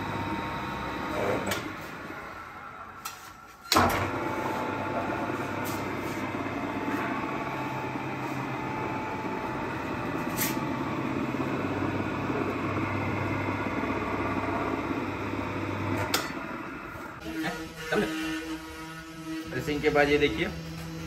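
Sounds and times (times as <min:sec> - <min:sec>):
pressing machine running: 0:00.0 - 0:03.0, 0:03.6 - 0:17.2.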